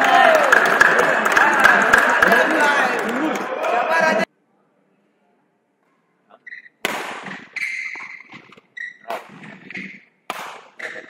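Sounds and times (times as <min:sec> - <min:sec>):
court shoes squeaking: 0:06.4 - 0:11.0.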